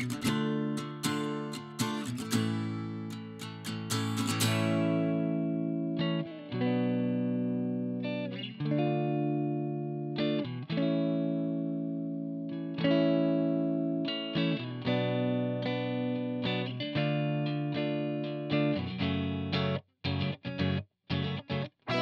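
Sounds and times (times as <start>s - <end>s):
electric guitar strumming chords: 0.0s - 20.8s.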